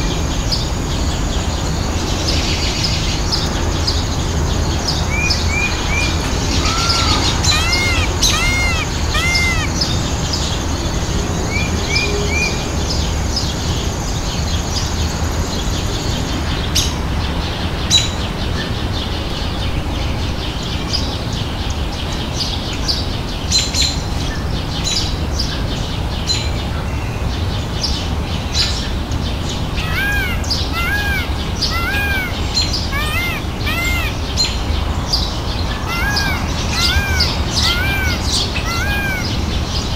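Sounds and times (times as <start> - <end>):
birds calling: 4.9 - 10.7, 29.4 - 39.9
high bird chirps: 6.5 - 10.0, 29.8 - 34.5, 35.7 - 39.4.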